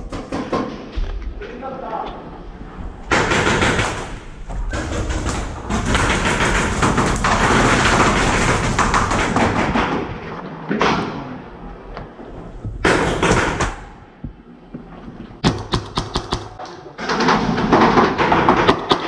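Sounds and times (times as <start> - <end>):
paintballs striking wooden walls: 3.1 - 11.3, 12.6 - 14.4, 15.4 - 19.0
paintball markers firing: 15.4 - 16.6.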